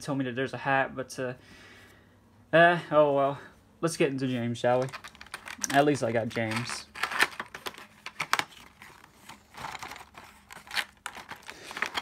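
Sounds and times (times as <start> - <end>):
cardboard and plastic packaging rustling: 4.2 - 12.0.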